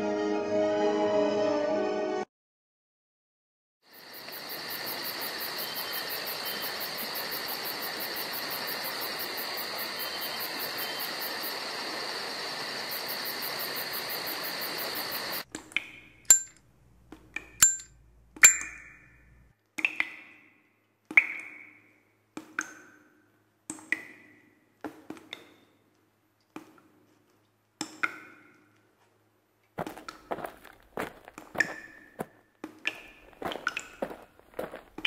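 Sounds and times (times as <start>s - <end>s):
high-pitched hiss with faint pulsing: 3.9s - 15.4s
pickaxe clinking on rock: 16.3s - 16.6s, 17.4s - 19.0s.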